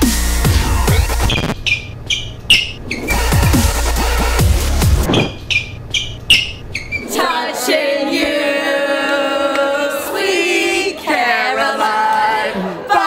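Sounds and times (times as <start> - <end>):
electronic dance music: 0.0 - 1.6, 3.0 - 5.1
group of voices singing: 7.0 - 13.0.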